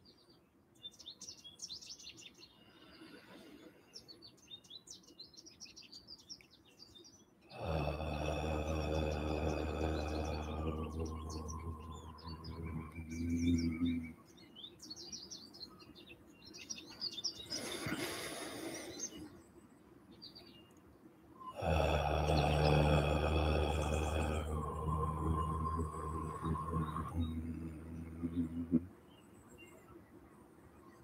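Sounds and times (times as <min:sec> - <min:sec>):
deep breath in: 0:02.6 - 0:03.9, 0:17.5 - 0:19.2
man chanting om: 0:07.5 - 0:14.4, 0:21.4 - 0:29.7.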